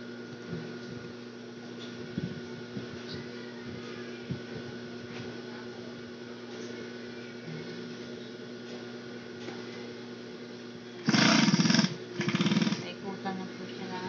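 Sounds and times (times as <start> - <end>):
sewing machine motor humming: 11.0 - 12.9.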